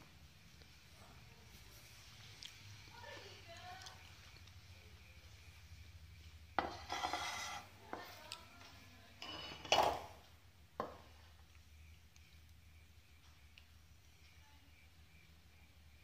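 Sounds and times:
faint low hum: 0:00.0 - 0:16.0
ceramic plate knocking and clinking: 0:09.2 - 0:10.2.

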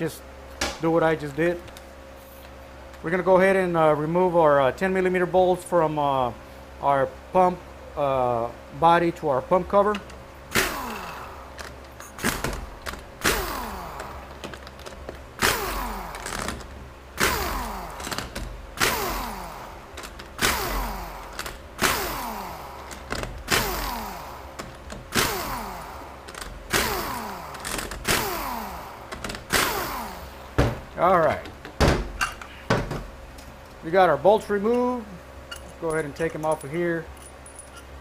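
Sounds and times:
power tool spinning out bolts: 0:10.5 - 0:30.2.

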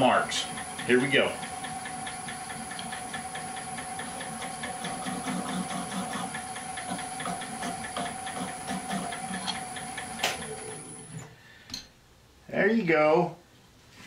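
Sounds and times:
chisel rubbing spinning wood: 0:00.0 - 0:11.1
wood lathe whining: 0:00.0 - 0:11.3.

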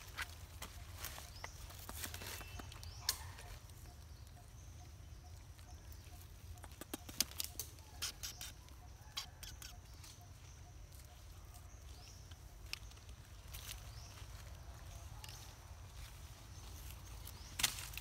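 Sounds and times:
monkeys scrambling over dry leaves: 0:00.0 - 0:04.4.

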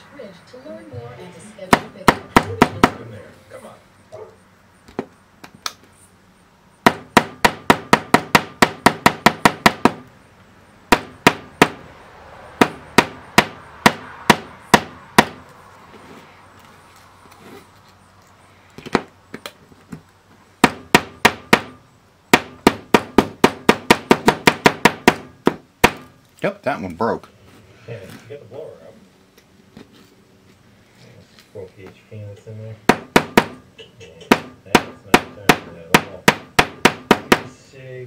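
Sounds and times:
hammer tapping steel: 0:32.9 - 0:37.5.

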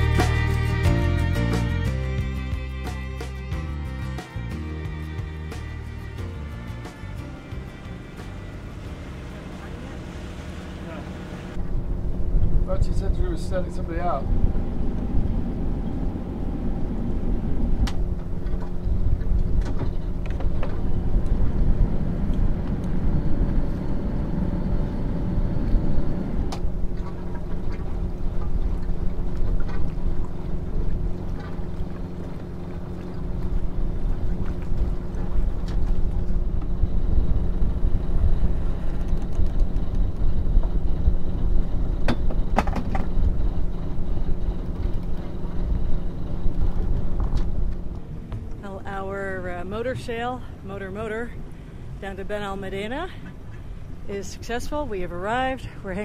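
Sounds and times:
diesel engine humming: 0:00.0 - 0:56.0.

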